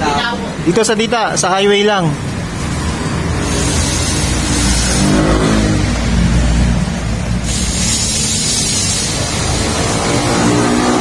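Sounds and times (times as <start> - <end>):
low traffic rumble: 0.0 - 11.0
vehicle engine passing: 2.2 - 11.0.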